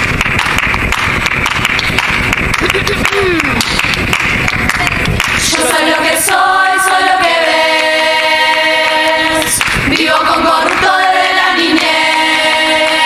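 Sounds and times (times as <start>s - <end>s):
chorus singing in harmony: 5.4s - 13.0s.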